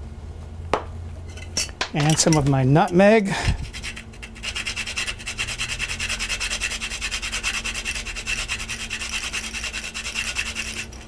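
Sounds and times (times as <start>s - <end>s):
nutmeg grater scraping: 3.5s - 11.0s.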